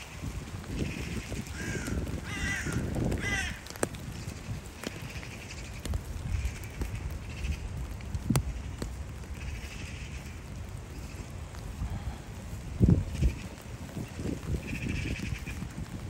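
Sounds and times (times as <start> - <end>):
scattered ticks: 0.5 - 11.9, 13.1 - 16.0
steady low rumble: 4.0 - 16.0.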